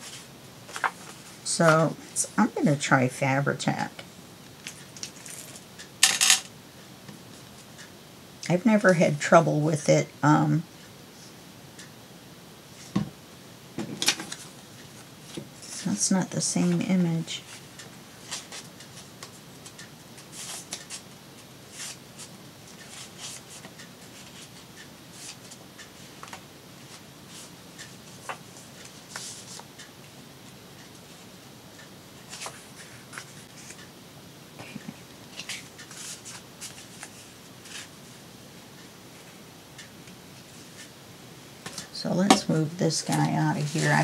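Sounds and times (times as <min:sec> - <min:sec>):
paper rustling and rubbing: 0:00.0 - 0:01.4, 0:20.2 - 0:21.0, 0:21.7 - 0:25.6, 0:28.1 - 0:29.6, 0:35.3 - 0:37.9.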